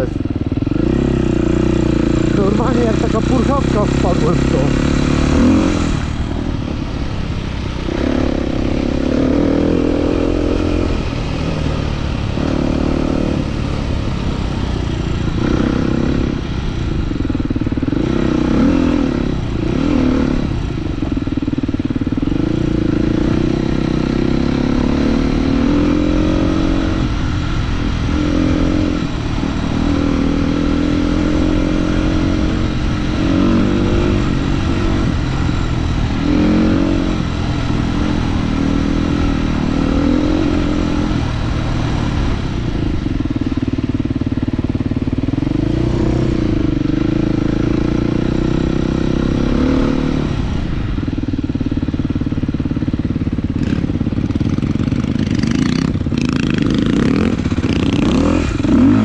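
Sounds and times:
motorcycle engine revving: 0.0 - 59.0
wind noise on microphone: 4.5 - 51.6.

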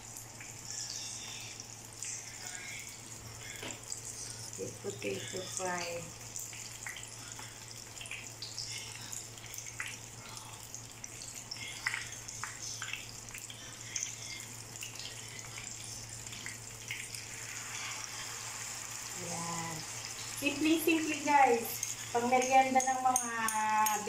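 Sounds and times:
food frying in hot oil: 0.0 - 24.0.

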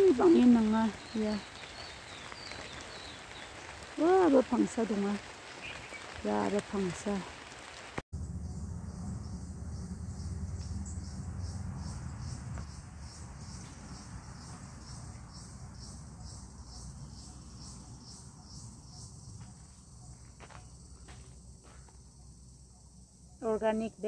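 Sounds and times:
insects chirping: 0.0 - 24.0
low rumble: 8.2 - 15.9.

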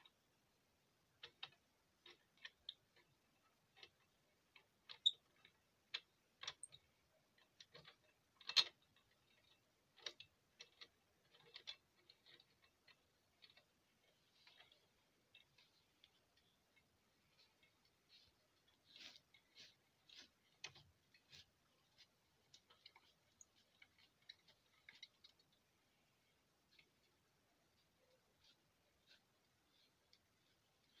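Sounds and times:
small metal parts clicking: 1.2 - 16.8.

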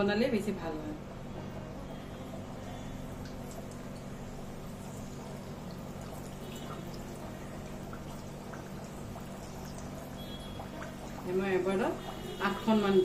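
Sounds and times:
dough frying in oil: 0.0 - 13.0.

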